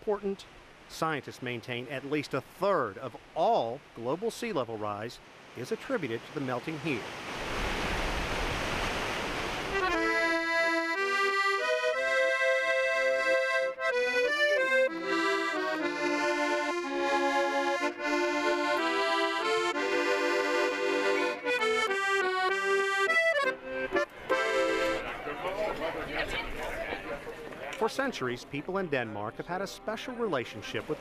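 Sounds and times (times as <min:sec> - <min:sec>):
accordion music: 0:09.7 - 0:26.6, 0:27.9 - 0:31.0.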